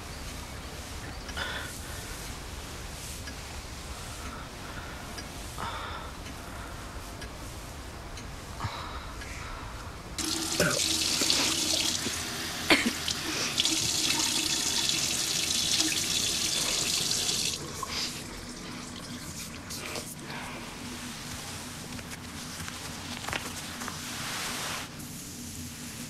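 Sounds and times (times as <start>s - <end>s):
running water: 10.2s - 20.4s.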